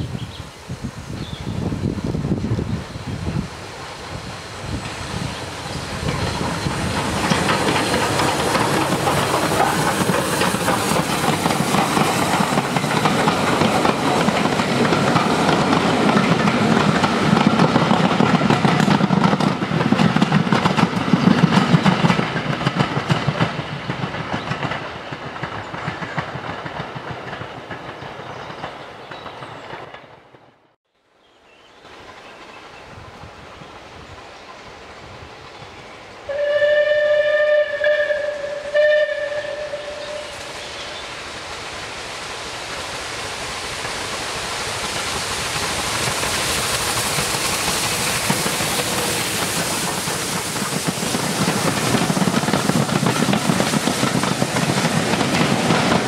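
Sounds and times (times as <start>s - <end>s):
steam hiss: 0.0s - 27.0s, 31.9s - 56.0s
distant train: 0.0s - 56.0s
train wheels clicking on rails: 2.3s - 30.7s, 31.9s - 56.0s.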